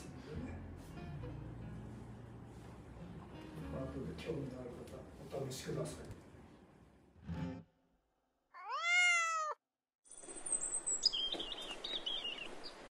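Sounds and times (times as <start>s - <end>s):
cat meowing: 8.6s - 9.6s.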